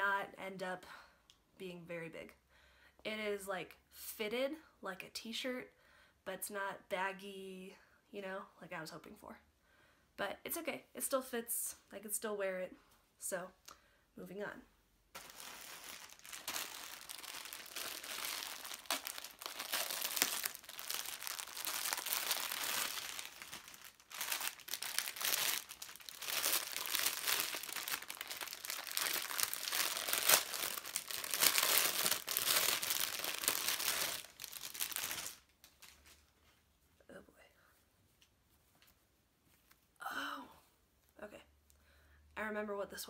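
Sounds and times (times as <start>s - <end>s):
packaging crinkling and rustling: 15.2s - 36.3s.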